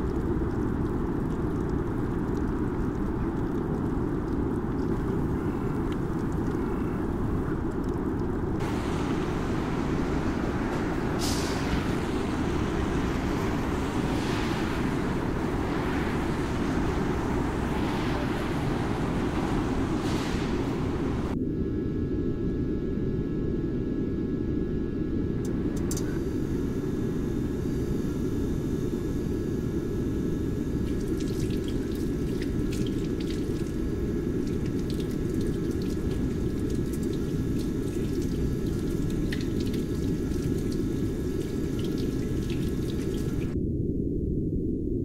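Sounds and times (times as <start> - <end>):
low rumbling drone: 0.0 - 45.0
hands washing splashes: 30.8 - 43.6
tap water running into sink: 30.8 - 43.6.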